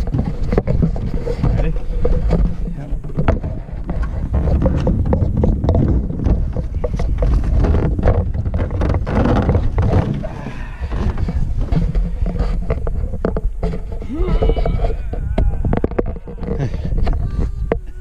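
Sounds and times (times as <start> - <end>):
wind rumble on microphone: 0.0 - 18.0.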